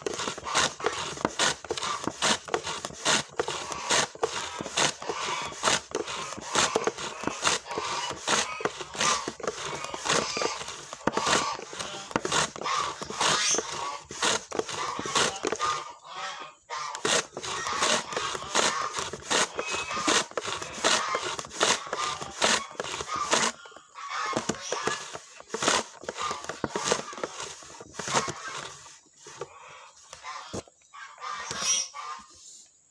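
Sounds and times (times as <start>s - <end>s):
slicer cutting shallots: 0.0s - 16.0s, 16.7s - 29.6s.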